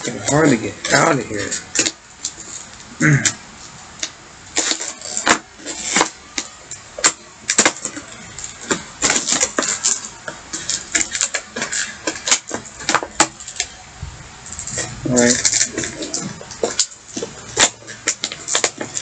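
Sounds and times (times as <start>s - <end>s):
plastic packaging crackling: 4.0s - 19.0s.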